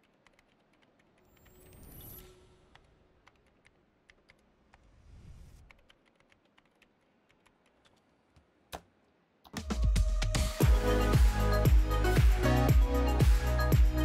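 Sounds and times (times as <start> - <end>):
laptop keyboard typing: 0.0 - 4.9, 5.6 - 8.1.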